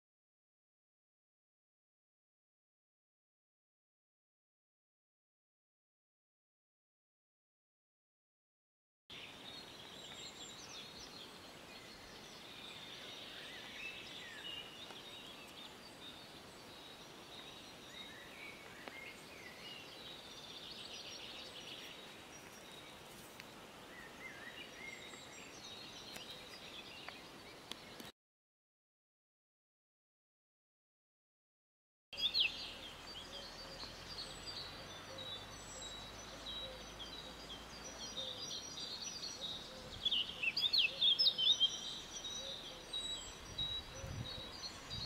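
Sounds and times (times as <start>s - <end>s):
songbirds singing: 9.1s - 28.1s, 32.2s - 45.0s.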